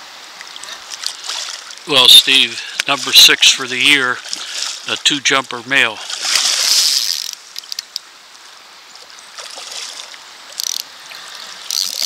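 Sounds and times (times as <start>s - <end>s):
stream trickling: 0.0s - 12.0s
fish thrashing and splashing: 2.7s - 5.0s, 6.0s - 7.4s.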